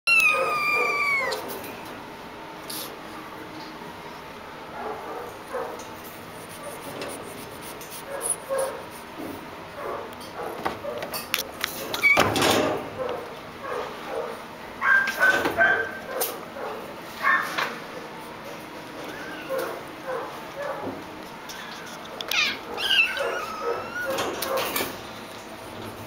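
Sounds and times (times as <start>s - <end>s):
kittens mewing and yelping: 0.0s - 1.8s, 21.5s - 24.8s
wire cage door rattling: 11.7s - 12.9s, 23.8s - 25.0s.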